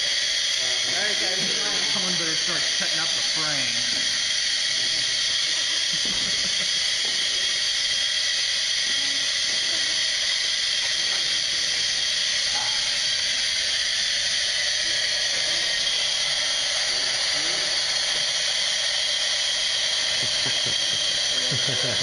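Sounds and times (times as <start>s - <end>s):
gas hissing from tank: 0.0s - 22.0s.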